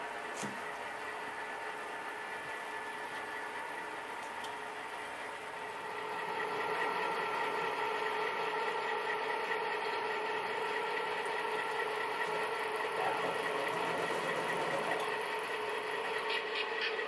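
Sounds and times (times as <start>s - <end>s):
diesel engine sound through small speaker: 0.0s - 17.0s.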